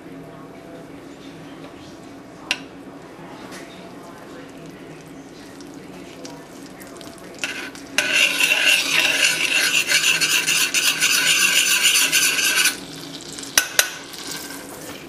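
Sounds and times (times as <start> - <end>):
metal spoon scraping saucepan: 7.4 - 12.9.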